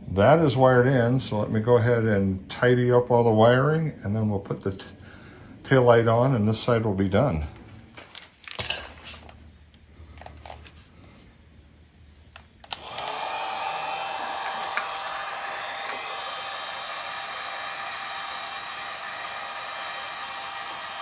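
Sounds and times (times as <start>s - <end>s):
heat gun fan whining: 12.3s - 21.0s.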